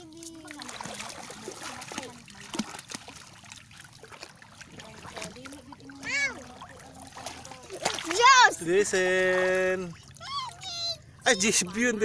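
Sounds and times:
hands splashing in water: 0.0 - 5.7, 6.4 - 8.4
seawater lapping at shore: 0.0 - 12.0.

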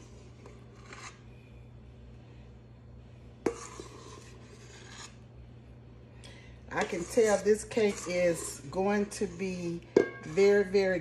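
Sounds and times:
utensil scraping metal bowl: 0.0 - 1.4, 3.4 - 5.3, 6.7 - 11.0
steady low hum: 0.0 - 11.0.

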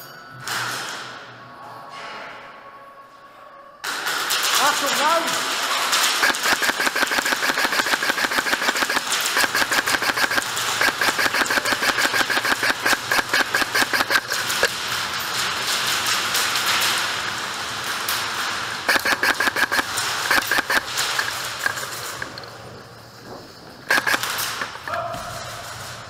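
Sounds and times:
airsoft rifle automatic fire: 3.9 - 14.8, 18.8 - 22.3, 23.8 - 25.2.

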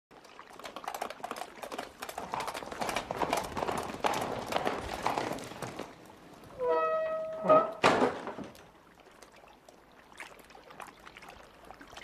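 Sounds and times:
horses galloping on dirt: 0.1 - 6.7.

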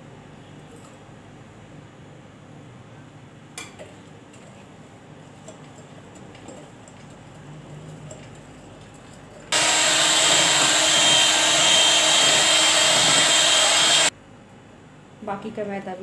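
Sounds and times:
electric hand mixer running: 9.5 - 14.1.

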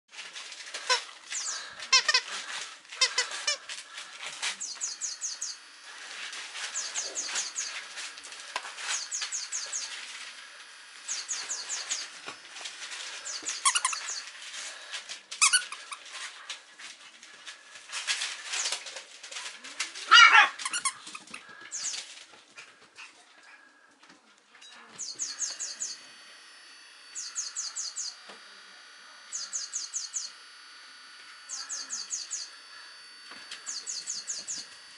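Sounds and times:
squeaky dog toys squeaking: 0.9 - 2.3, 3.0 - 3.6, 13.3 - 14.2, 15.4 - 16.1, 20.1 - 21.9
high chirping trills: 4.5 - 8.0, 8.8 - 12.4, 13.2 - 14.4, 21.7 - 22.0, 25.0 - 34.9.

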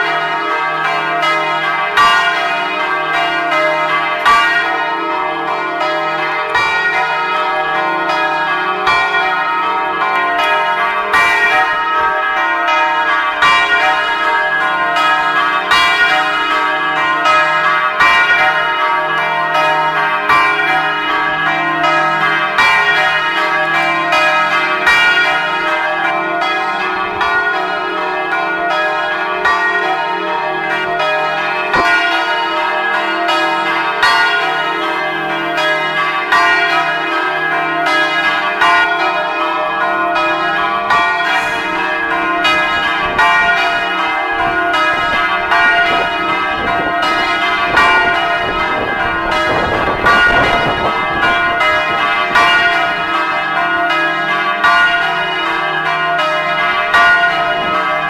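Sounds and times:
church bells pealing: 0.0 - 58.0.

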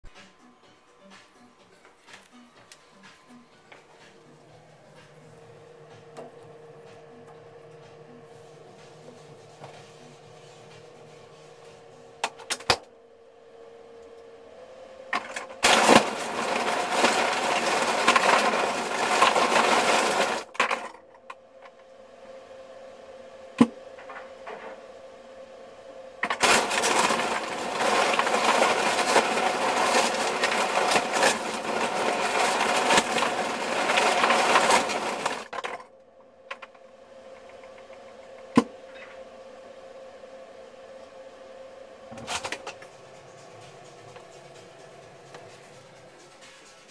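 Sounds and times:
refrigerator hum: 0.0 - 46.9
ice dispenser clattering and grinding: 15.1 - 21.8, 26.2 - 35.9, 36.5 - 39.1, 42.1 - 46.9.

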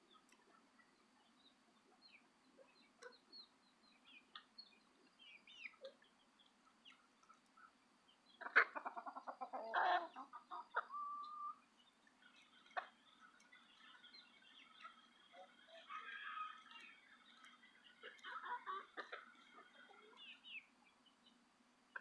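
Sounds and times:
chickens chirping and clucking: 0.0 - 22.0
chicken squawking: 8.4 - 11.6, 15.5 - 16.8.

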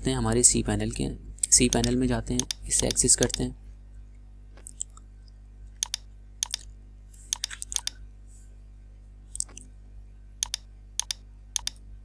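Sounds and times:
low electrical hum: 0.0 - 12.0
keyboard and mouse clicks: 1.4 - 3.4, 5.8 - 6.7, 7.3 - 8.0, 10.4 - 11.8.

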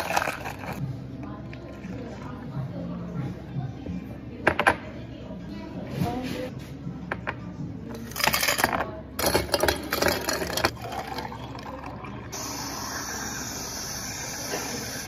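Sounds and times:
ice cubes clattering into glass jars: 8.1 - 11.3
milk pouring over ice: 10.1 - 13.2.

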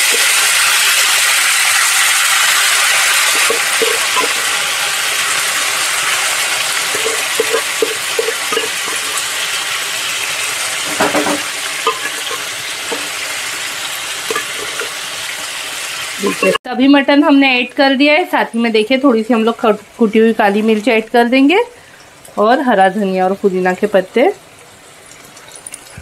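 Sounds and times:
meat sizzling in oil: 0.0 - 16.6.

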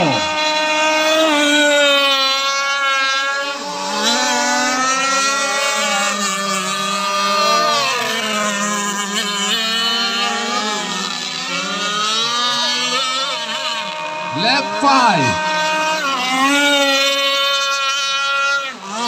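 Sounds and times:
model powerboat engines whining: 0.0 - 19.0.

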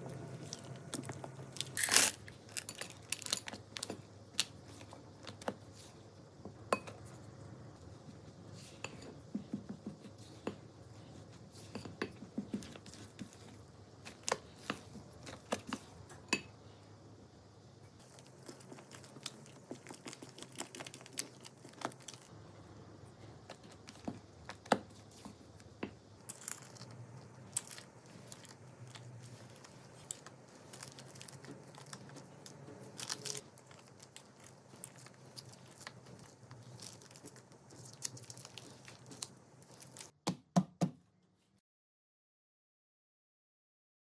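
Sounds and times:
plastic piping bag crinkling: 0.0 - 5.5, 18.0 - 22.3, 26.2 - 40.1
faint low hum: 0.0 - 40.1.

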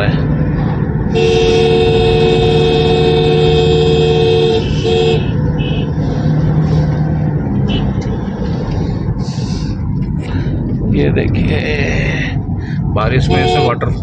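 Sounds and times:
car road and engine noise: 0.0 - 14.0
vehicle horn: 1.1 - 6.0, 13.2 - 13.8.

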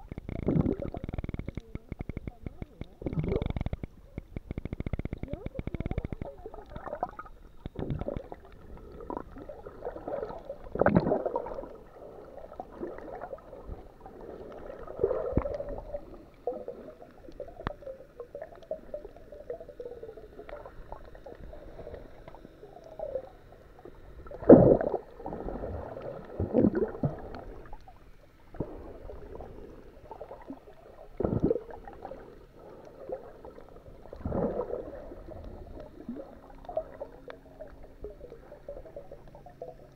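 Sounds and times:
water gurgling and sloshing: 0.0 - 39.9.

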